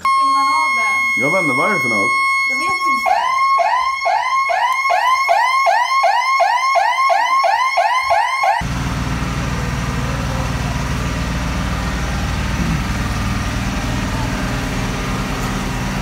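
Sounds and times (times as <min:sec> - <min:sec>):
electronic alarm siren wailing: 0:00.0 - 0:08.6.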